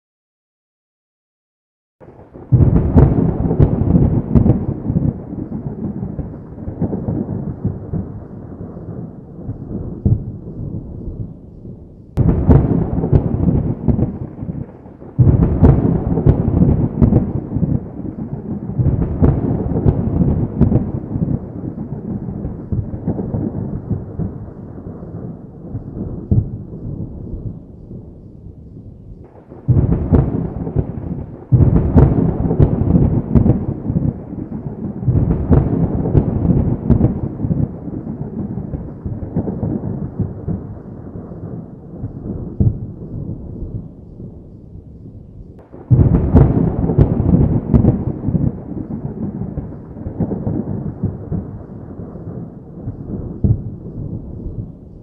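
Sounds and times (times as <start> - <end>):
loud thunder peals: 2.0 - 11.4, 12.2 - 28.2, 29.2 - 44.4, 45.6 - 54.9
thunder rumbling: 2.0 - 55.0.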